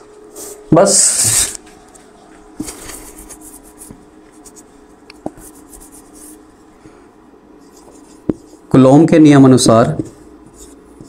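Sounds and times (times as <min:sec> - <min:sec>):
faint steady hum: 0:00.0 - 0:11.0
pen scratching on paper: 0:03.0 - 0:06.4, 0:07.6 - 0:08.6, 0:10.1 - 0:11.0.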